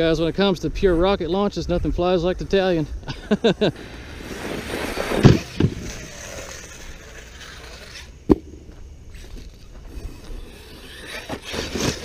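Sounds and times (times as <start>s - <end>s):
rc truck motor whining: 3.8s - 8.2s, 9.1s - 12.0s
sharp thumps: 4.2s - 12.0s.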